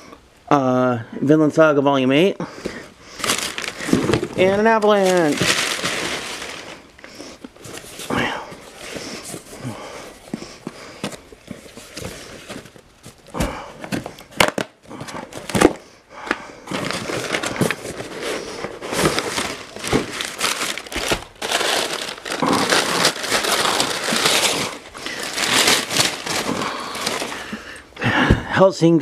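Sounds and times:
packing paper crinkling: 2.6s - 15.8s, 16.6s - 27.9s.

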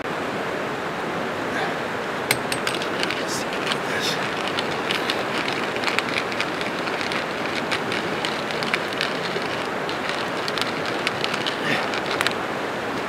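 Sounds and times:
pepper mill grinding: 2.3s - 12.4s.

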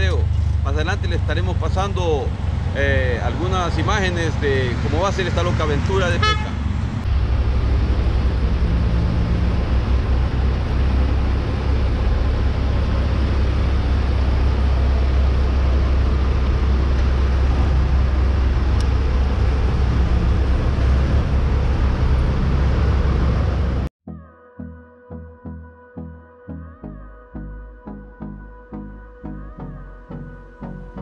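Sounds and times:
vehicle engine idling: 0.0s - 23.9s.

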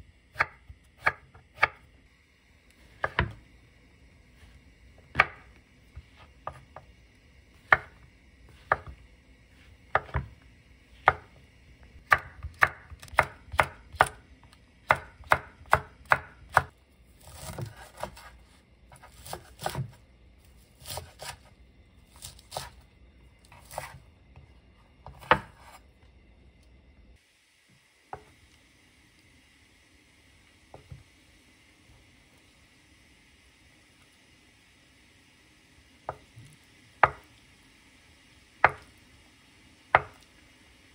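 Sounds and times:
knife chopping on wooden board: 0.4s - 1.8s, 3.0s - 3.4s, 5.1s - 5.5s, 6.2s - 6.9s, 7.6s - 8.0s, 8.6s - 9.0s, 9.9s - 10.3s, 11.0s - 11.4s, 12.0s - 14.2s, 14.9s - 20.0s, 20.8s - 21.5s, 22.1s - 22.8s, 23.5s - 24.0s, 25.0s - 25.8s, 37.0s - 37.2s, 38.6s - 38.9s, 39.9s - 40.2s.

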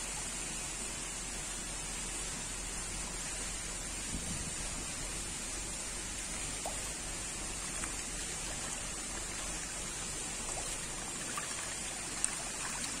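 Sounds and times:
pond water trickling and splashing: 0.0s - 13.0s
small sharp splashes: 6.2s - 13.0s.

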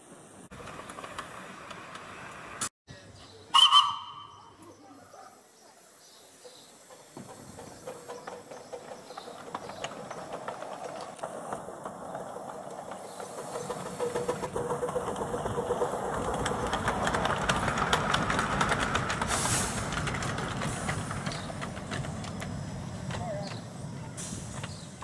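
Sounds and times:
clicking of locomotive wheels: 0.5s - 2.7s, 6.7s - 25.0s
steam hissing: 5.8s - 25.0s.

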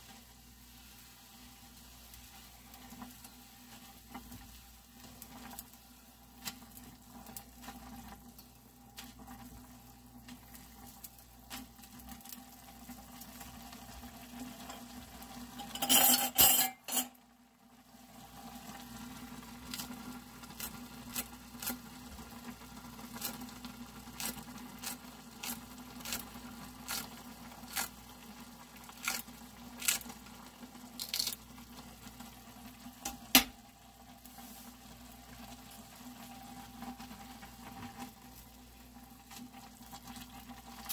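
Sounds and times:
scissors snipping chili pepper: 29.0s - 29.2s, 31.0s - 31.4s.

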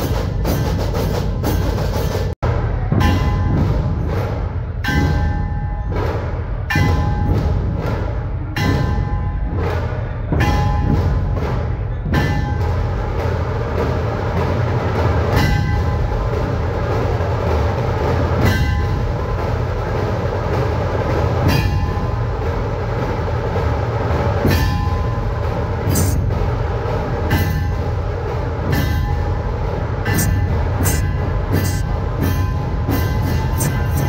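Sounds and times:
snare drums rattling: 0.0s - 2.4s, 19.2s - 29.0s, 29.6s - 34.0s
sharp ringing strike: 0.0s - 13.4s, 24.4s - 34.0s
big drums pounding: 0.0s - 34.0s.

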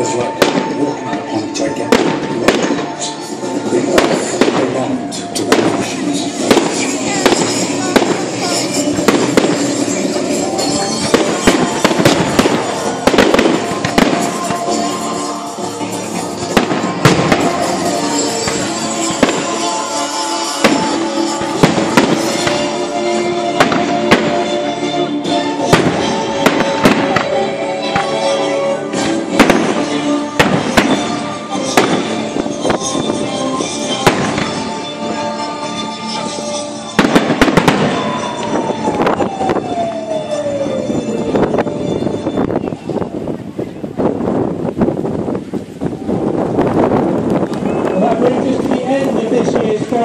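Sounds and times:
music: 0.0s - 44.8s
firework bangs: 0.3s - 1.0s, 1.8s - 3.2s, 3.8s - 15.1s, 16.4s - 24.7s, 25.6s - 28.4s, 29.0s - 33.2s, 33.9s - 34.9s, 36.9s - 39.7s.

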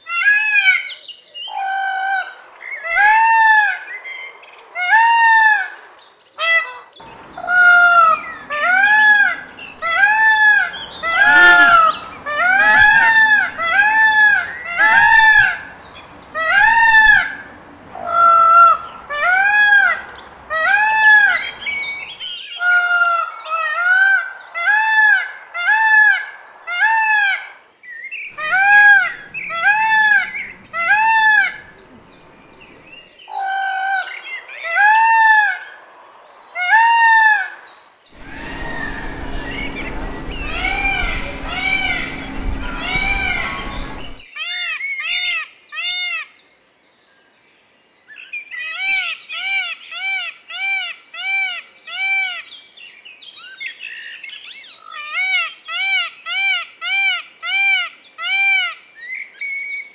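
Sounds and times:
peacock honking calls: 6.4s - 23.0s, 28.3s - 32.9s, 38.2s - 44.2s.

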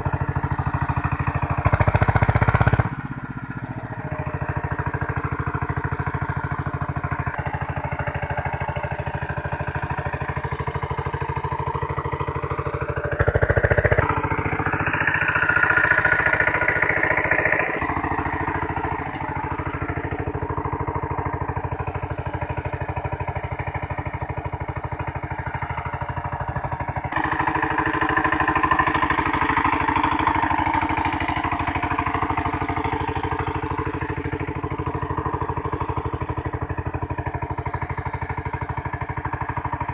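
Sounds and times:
diesel tiller engine running: 0.0s - 39.9s
rotary tiller churning soil: 12.2s - 33.9s.

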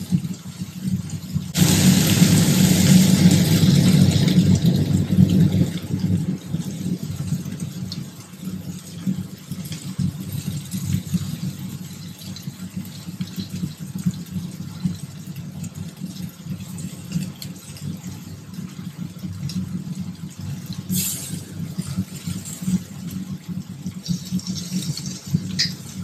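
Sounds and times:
low motor-like hum: 1.5s - 8.6s.

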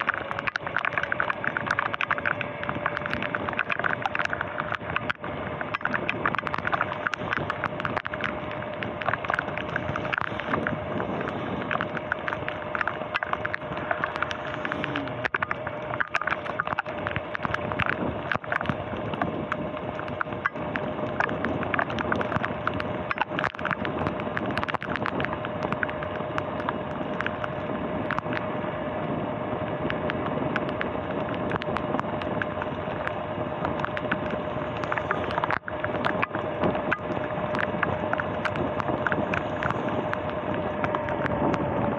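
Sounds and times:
sharp ticks: 0.0s - 28.5s, 29.7s - 41.9s
tyres on wet road: 0.0s - 41.9s.

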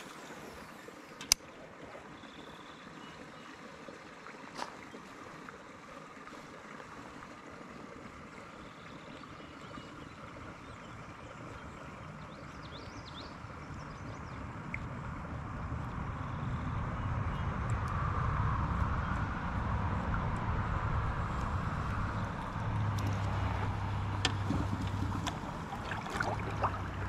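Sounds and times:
river water flowing: 0.0s - 27.0s
click: 1.2s - 1.5s
low rumble: 13.6s - 27.0s.

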